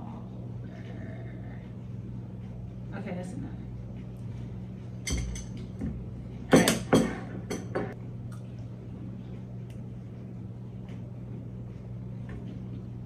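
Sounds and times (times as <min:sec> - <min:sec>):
low steady hum: 0:00.0 - 0:13.0
tableware clinking: 0:05.0 - 0:05.7, 0:06.5 - 0:08.0.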